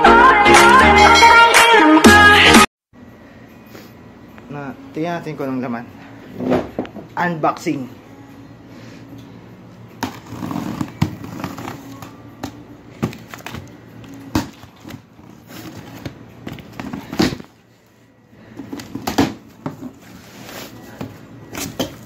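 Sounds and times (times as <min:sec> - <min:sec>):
cardboard and tape scraping: 0:10.0 - 0:12.0.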